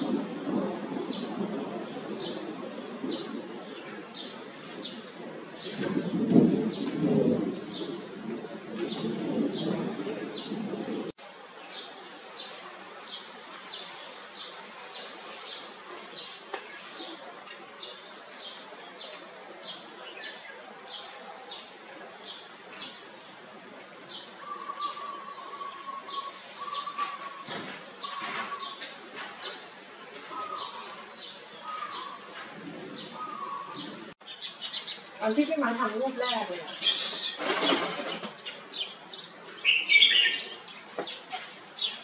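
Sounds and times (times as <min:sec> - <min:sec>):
bird high chirps: 0:36.3 - 0:38.9.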